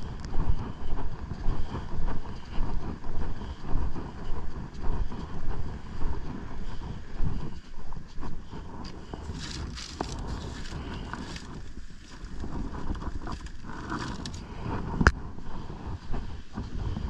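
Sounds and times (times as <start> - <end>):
wind buffeting microphone: 0.0 - 17.0
plastic bag crinkling: 9.3 - 12.4.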